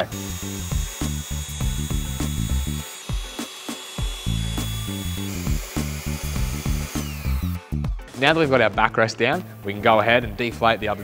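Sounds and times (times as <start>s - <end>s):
background music with bass line: 0.0s - 3.4s, 4.0s - 11.0s
electric air pump whining: 0.0s - 8.1s.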